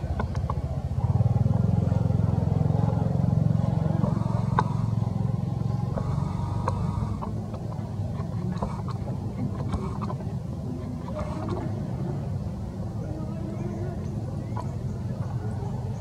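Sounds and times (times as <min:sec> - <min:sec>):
faint clicks: 0:00.0 - 0:00.7, 0:03.9 - 0:12.0
engine running: 0:00.0 - 0:16.0.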